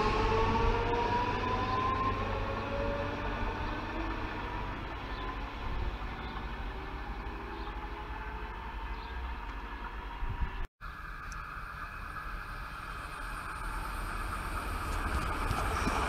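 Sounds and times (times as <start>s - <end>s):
faint train whine: 0.0s - 16.0s
steady noise: 10.8s - 16.0s
train wheels rumbling on rail: 11.4s - 16.0s.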